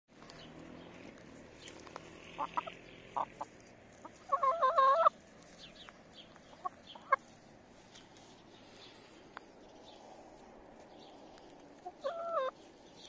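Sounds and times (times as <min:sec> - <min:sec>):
hens clucking: 0:01.7 - 0:08.5, 0:10.8 - 0:12.8.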